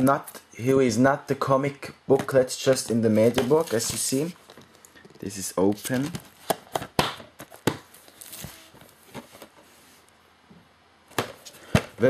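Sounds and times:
plastic wrap rustling: 2.6 - 10.1.

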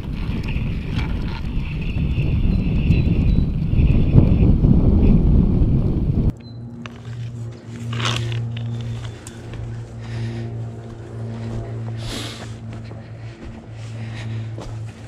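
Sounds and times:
rustling in dry leaves: 6.9 - 15.0.

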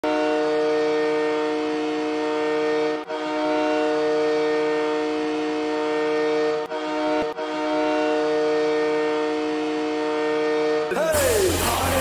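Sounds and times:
ice hockey goal horn: 0.0 - 12.0.

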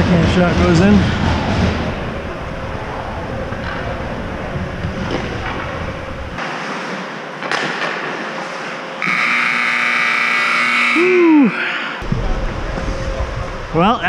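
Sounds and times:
ice rink horn blast: 9.0 - 11.6.

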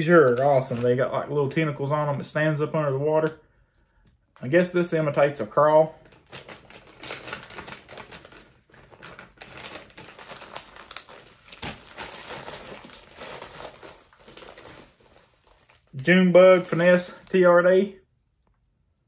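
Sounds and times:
plastic packages crinkling: 0.0 - 1.4, 5.9 - 17.6.

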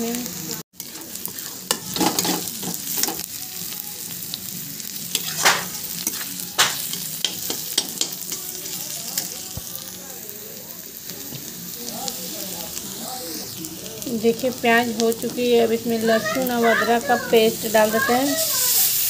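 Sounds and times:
onions sizzling in hot oil: 0.0 - 19.0
spoon scraping a pan: 0.8 - 3.3, 5.1 - 8.8.

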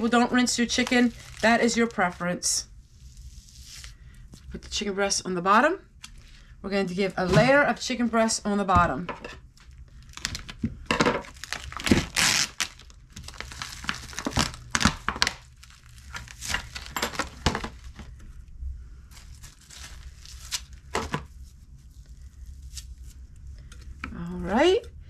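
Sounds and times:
plastic film crinkling and tearing: 0.0 - 4.0, 9.6 - 18.2, 19.1 - 23.2.

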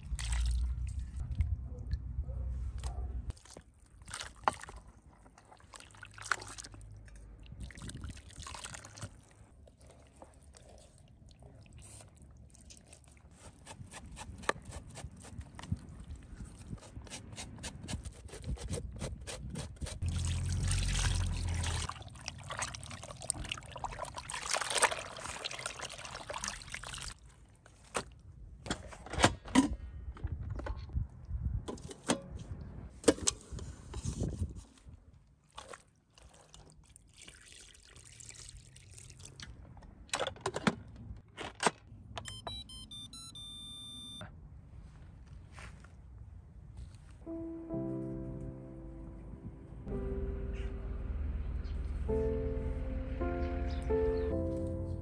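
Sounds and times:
water sloshing and dripping: 0.0 - 1.5, 2.8 - 13.3, 20.0 - 27.8, 35.3 - 40.0.

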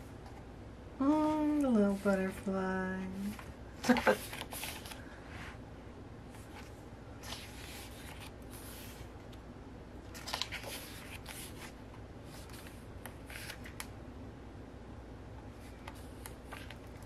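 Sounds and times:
book pages turning: 3.3 - 5.0, 6.3 - 9.1, 10.1 - 13.9, 15.5 - 17.0.

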